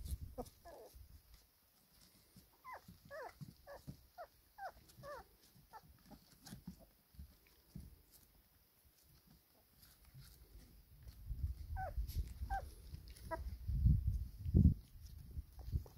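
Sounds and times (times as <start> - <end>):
puppies whining: 0.4 - 1.0, 2.6 - 6.8, 11.7 - 13.6.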